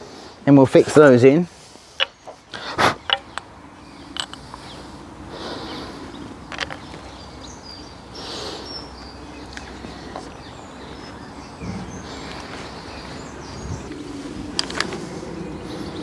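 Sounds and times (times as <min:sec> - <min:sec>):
light metal clicks: 0:04.1 - 0:04.6
steady low rumble: 0:09.1 - 0:16.0.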